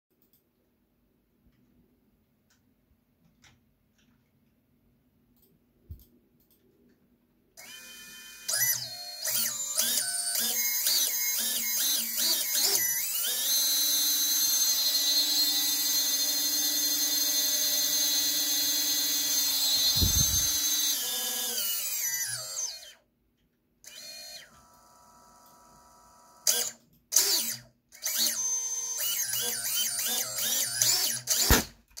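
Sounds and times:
drone motors whining: 7.6s - 23.0s
capacitor bang: 31.4s - 31.7s.

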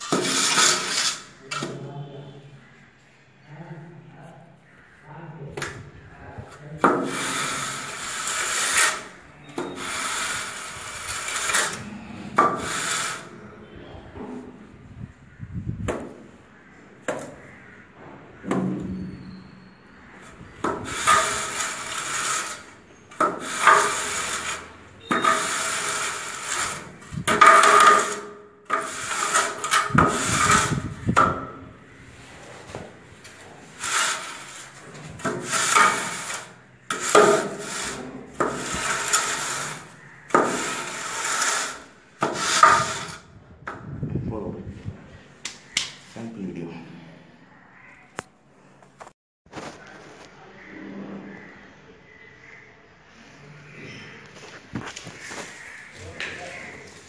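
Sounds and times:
straightedge scraping mortar: 0.0s - 1.9s, 6.4s - 13.6s, 20.1s - 43.2s.

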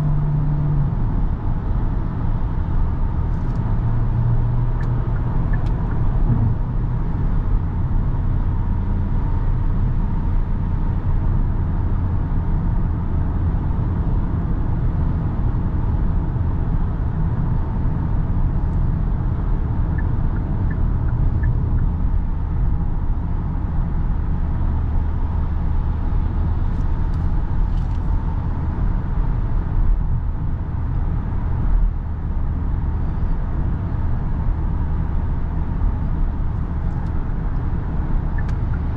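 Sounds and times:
car engine hum: 0.0s - 38.9s
tyre and road noise: 1.8s - 9.7s.

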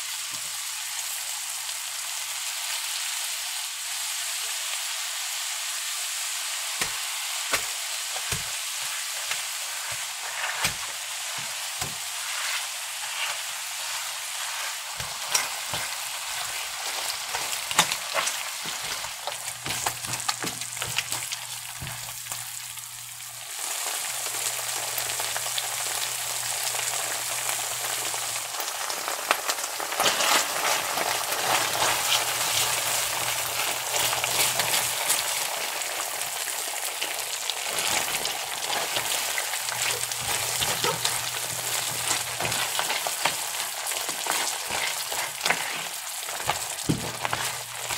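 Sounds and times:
garlic sizzling in butter: 0.0s - 47.9s
spatula scraping and tapping pan: 6.8s - 22.2s, 37.8s - 47.9s.

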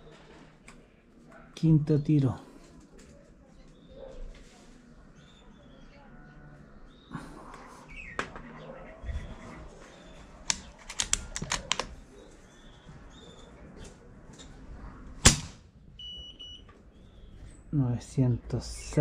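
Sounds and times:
sharp clicks: 10.4s - 12.0s
air rifle shot: 15.2s - 15.7s.

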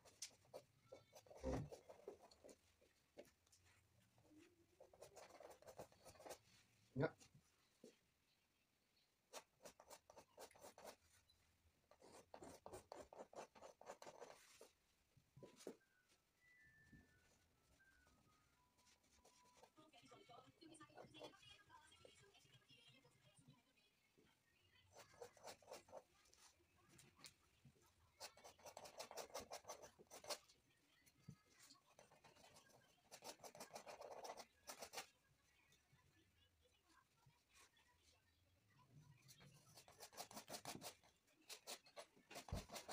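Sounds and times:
paintbrush scratching on canvas: 0.0s - 6.8s, 9.3s - 11.3s, 11.9s - 14.8s, 24.9s - 26.6s, 28.1s - 30.6s, 31.5s - 35.2s, 39.3s - 42.9s.

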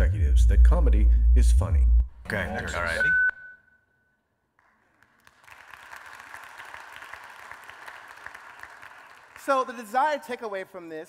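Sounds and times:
audience applauding: 4.6s - 10.2s.

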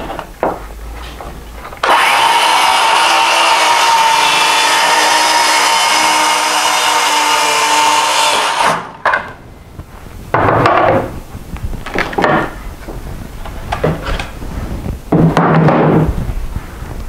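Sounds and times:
knocks and handling noises: 0.0s - 1.8s, 9.0s - 16.4s
circular saw cutting: 1.8s - 9.0s.

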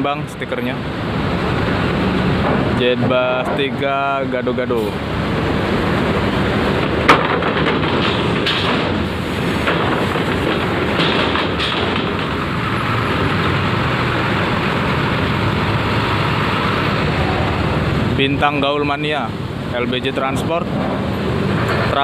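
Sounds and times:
bus engine driving past: 0.7s - 7.1s, 8.2s - 19.8s
knocks on steel ramp: 6.9s - 12.5s.

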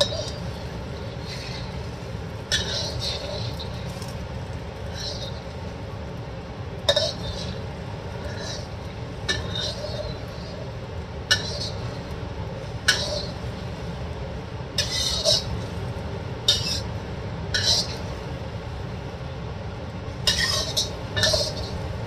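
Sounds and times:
metal spatula scraping a wok: 0.0s - 5.8s, 6.8s - 14.0s, 14.8s - 18.3s, 20.3s - 21.9s
eggs frying in oil: 0.0s - 22.0s.

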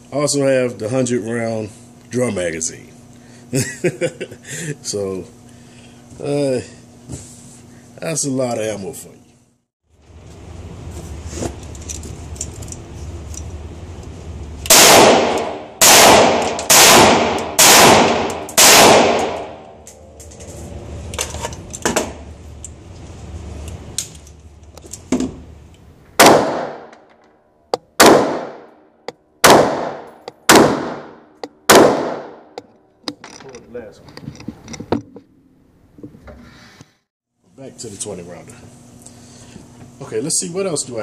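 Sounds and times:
rifle shots echoing indoors: 14.6s - 19.8s, 26.2s - 27.0s, 28.0s - 28.8s, 29.4s - 32.6s.

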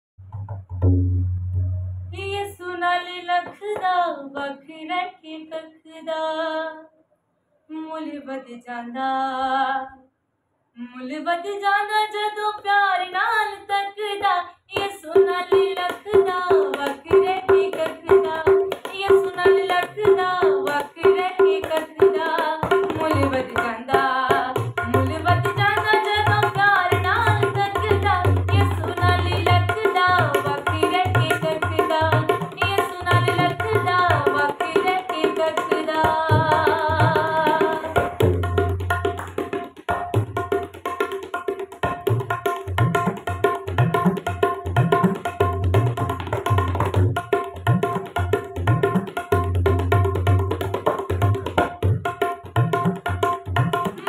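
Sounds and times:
hand drum: 0.2s - 2.1s, 14.8s - 54.0s
woman singing: 2.1s - 6.9s, 7.7s - 10.0s, 10.8s - 38.2s.

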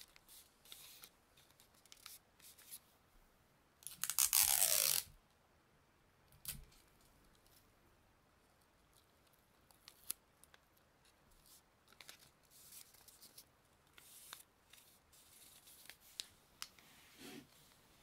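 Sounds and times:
faint rustling strokes: 11.0s - 18.0s.

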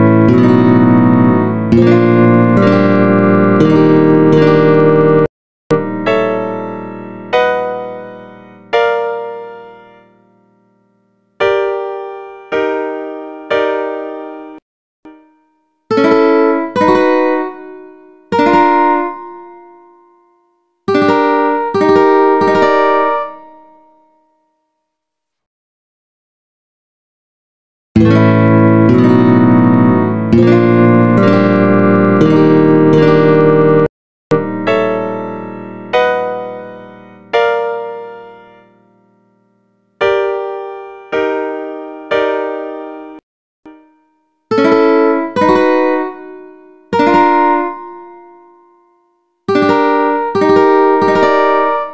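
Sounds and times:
ukulele chords ringing: 0.0s - 9.6s, 15.1s - 23.9s, 28.0s - 38.5s, 43.7s - 51.9s.

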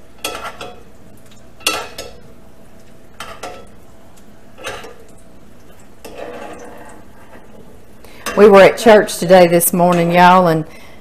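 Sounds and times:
dough sizzling in grease: 0.0s - 10.4s
metal spoon scraping skillet: 6.0s - 7.6s.

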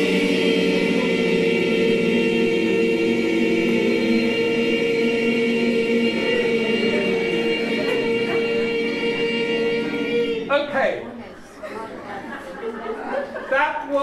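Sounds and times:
people chanting in unison: 0.0s - 10.5s.

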